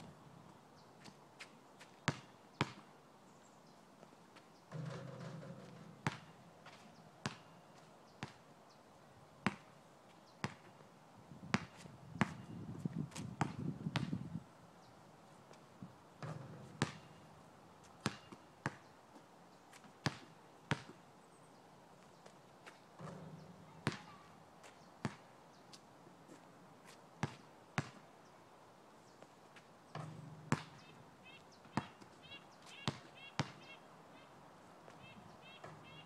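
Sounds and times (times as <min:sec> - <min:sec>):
basketball bouncing on asphalt: 0:01.9 - 0:02.9, 0:04.7 - 0:08.5, 0:09.4 - 0:09.8, 0:10.4 - 0:10.8, 0:11.4 - 0:14.4, 0:16.2 - 0:21.0, 0:22.6 - 0:25.3, 0:27.2 - 0:28.1, 0:29.9 - 0:31.0, 0:31.6 - 0:33.8, 0:34.9 - 0:36.0.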